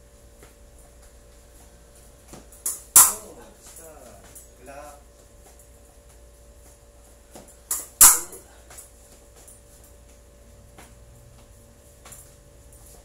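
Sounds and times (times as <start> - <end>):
fencing blades clicking: 2.6 - 3.3, 7.7 - 8.4.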